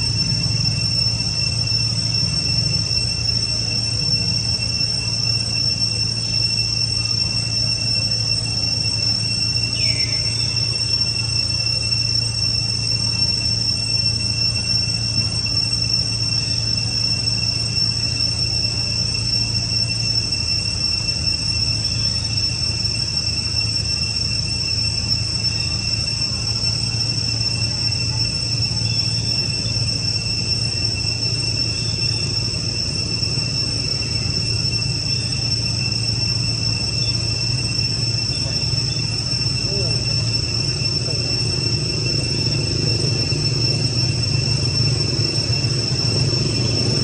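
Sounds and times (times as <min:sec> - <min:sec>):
insects buzzing: 0:00.0 - 0:47.0
low steady rumble: 0:00.0 - 0:47.0.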